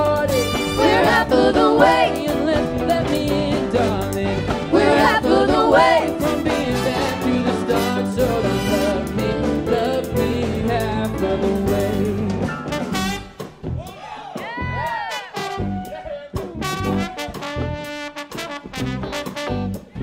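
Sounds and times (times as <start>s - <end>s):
person singing: 0.0s - 12.5s
bass line: 0.0s - 20.0s
big band playing funk: 0.0s - 20.0s
drum kit: 0.0s - 20.0s
horn section: 0.2s - 2.4s, 3.8s - 9.6s, 12.6s - 13.5s, 14.9s - 20.0s.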